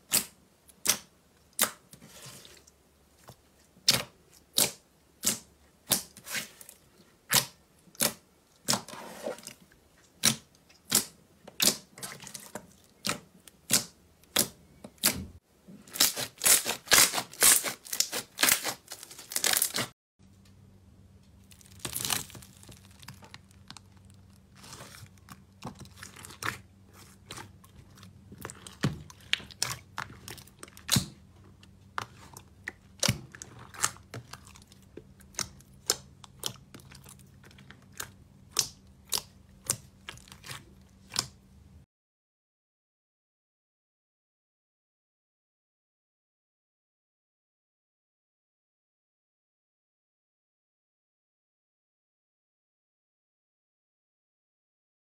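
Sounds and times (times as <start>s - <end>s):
slime squished by hands: 3.2s - 15.3s, 15.9s - 19.9s, 21.4s - 41.5s.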